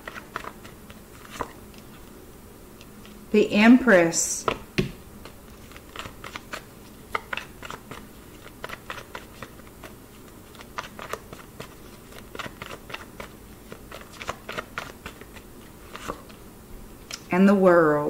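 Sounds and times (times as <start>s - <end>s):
cards being shuffled by hand: 0.0s - 2.2s, 4.4s - 16.4s.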